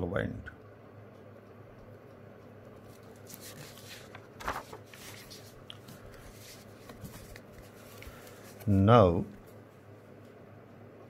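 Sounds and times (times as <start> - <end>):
paper rustling and scraping: 2.9 - 8.8.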